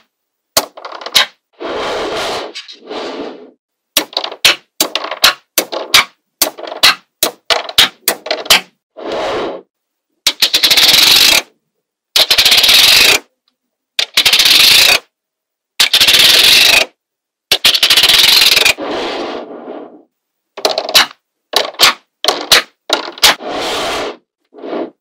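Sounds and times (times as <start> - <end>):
magnetic balls clicking and rattling: 0.6 - 1.4.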